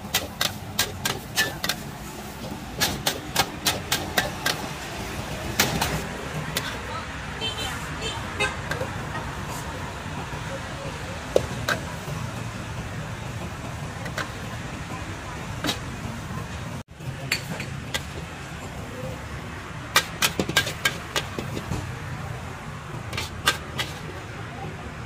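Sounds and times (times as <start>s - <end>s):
low rumble of street traffic: 0.0s - 25.0s
metal spatula scraping a wok: 5.8s - 6.9s, 23.1s - 24.1s.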